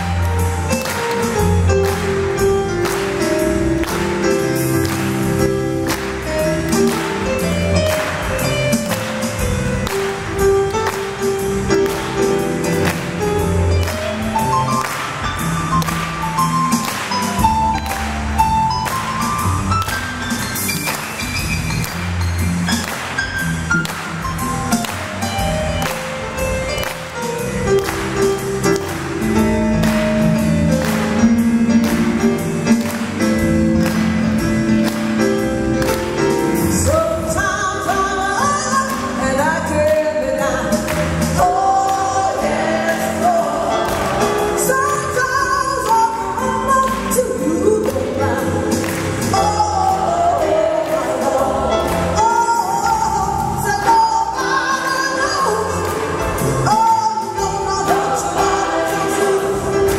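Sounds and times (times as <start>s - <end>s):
gospel singing: 36.6s - 59.9s.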